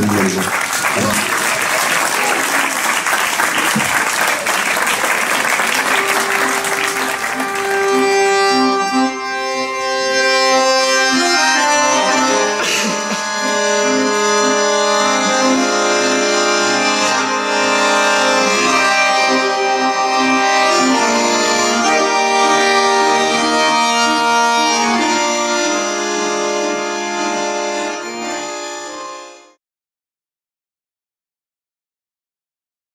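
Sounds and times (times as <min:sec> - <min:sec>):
accordion playing chords and melody: 0:04.8 - 0:29.6.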